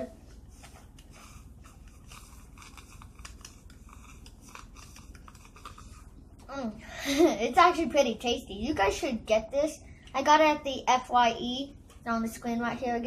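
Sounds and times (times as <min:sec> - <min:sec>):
small clicks and scrapes: 0:00.6 - 0:06.1.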